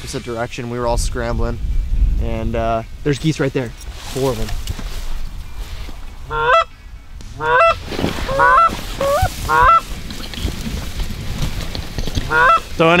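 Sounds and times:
geese honking: 6.2s - 6.8s, 7.4s - 10.0s, 12.2s - 12.8s.

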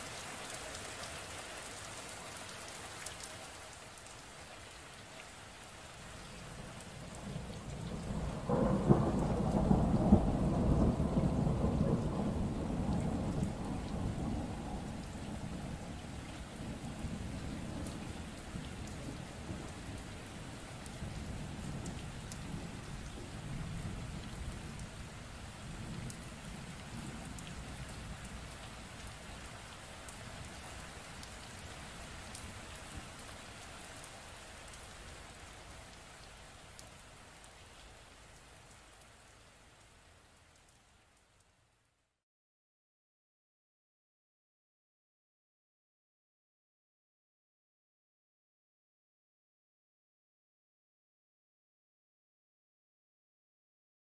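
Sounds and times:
steady rain falling: 0.0s - 42.2s
thunderclap with rolling rumble: 7.0s - 20.2s, 20.8s - 24.9s.

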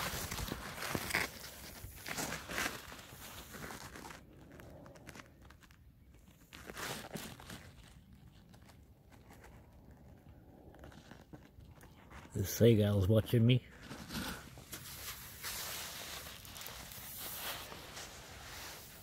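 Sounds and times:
crunching on shell grit sand: 0.0s - 12.9s, 13.8s - 19.0s.

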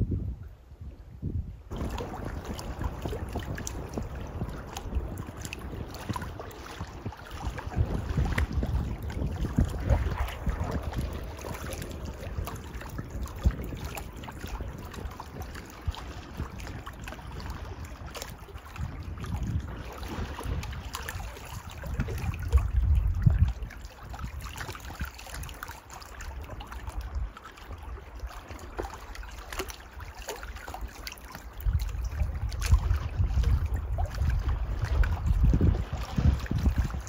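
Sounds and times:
wind buffeting microphone: 0.0s - 37.0s
water splashing and lapping: 1.7s - 37.0s.

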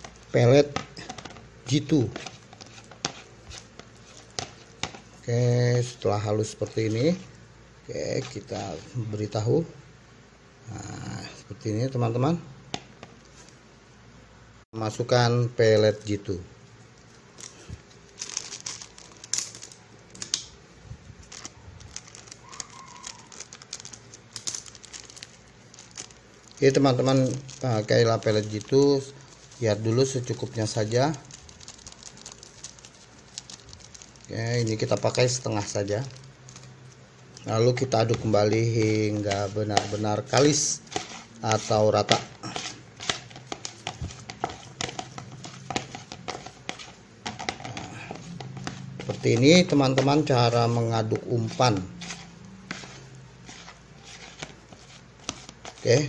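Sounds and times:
spoon stirring sticky paste: 0.0s - 9.0s, 22.2s - 56.0s
plastic sachet crinkling: 17.0s - 20.4s, 21.2s - 56.0s
pellets rattling into plastic bowl: 17.4s - 19.8s, 21.3s - 36.7s, 37.4s - 56.0s.

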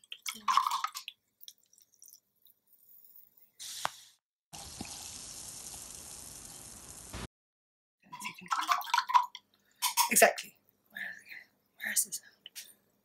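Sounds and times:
liquid fizzing in a jar: 0.0s - 3.3s.

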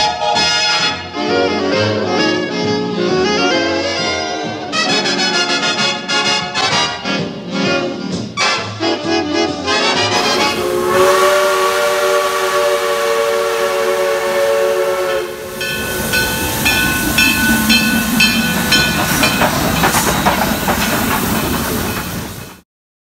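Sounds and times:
steam locomotive whistle: 9.7s - 22.6s
locomotive bell ringing: 15.2s - 22.6s.

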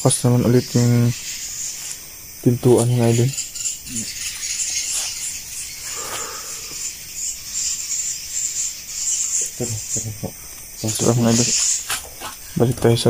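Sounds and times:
night insects chirping: 0.0s - 13.0s.

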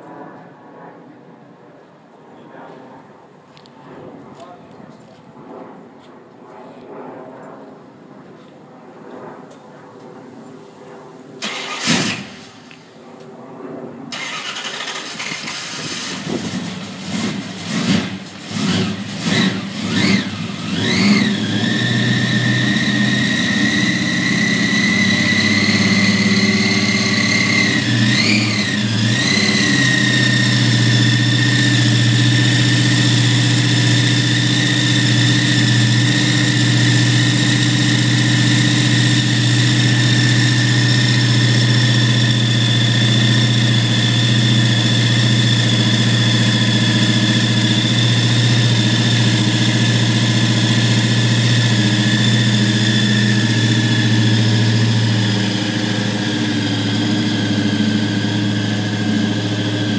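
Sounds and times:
engine idling with high whine: 0.0s - 59.9s
engine starting and revving: 11.4s - 12.6s, 14.1s - 59.9s.

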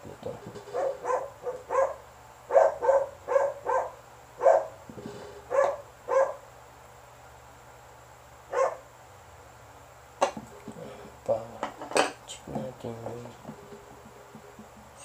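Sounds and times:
dog barking: 0.7s - 4.8s, 5.5s - 6.4s, 8.5s - 8.9s.

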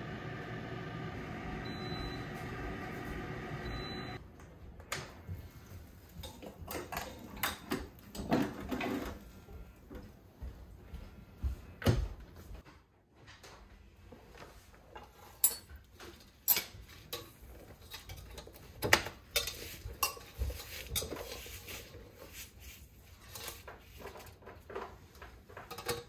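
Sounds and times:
air fryer fan hum: 0.0s - 4.2s
metal basket clanks and scrapes: 14.9s - 26.0s.

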